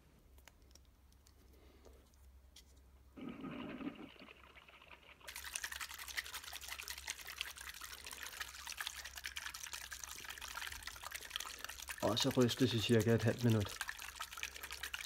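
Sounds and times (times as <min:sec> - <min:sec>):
water trickling into tube: 0:03.2 - 0:15.0.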